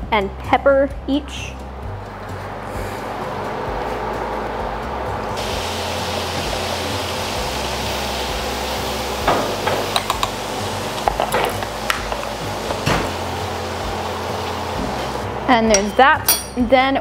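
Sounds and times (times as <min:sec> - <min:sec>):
steady hiss: 0:05.4 - 0:15.2
utensil clinking against bowl: 0:15.7 - 0:16.7.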